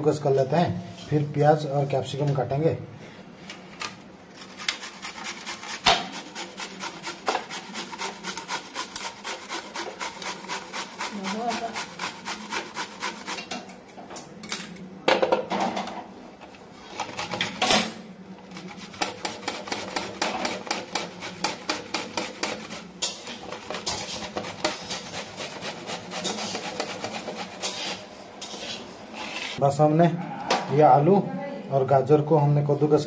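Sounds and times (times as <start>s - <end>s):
vegetable grating on metal grater: 4.3s - 13.5s, 18.5s - 29.6s.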